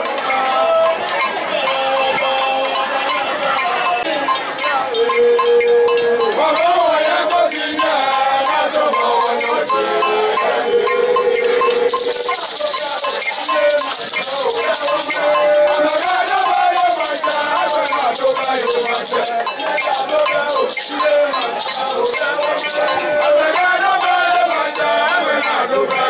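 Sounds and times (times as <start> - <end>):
man singing into a microphone: 0.0 - 26.0
gourd shaker rattling: 10.4 - 25.1.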